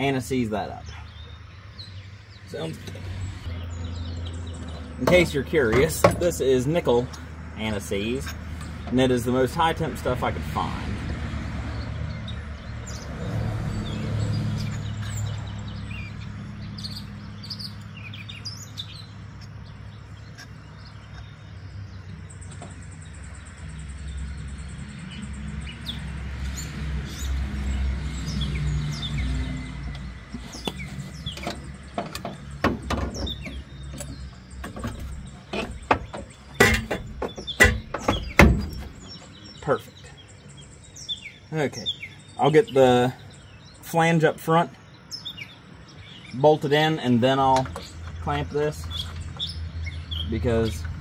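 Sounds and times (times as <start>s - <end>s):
birds chirping: 0.0s - 51.0s
metal clinks and knocks: 30.3s - 39.4s.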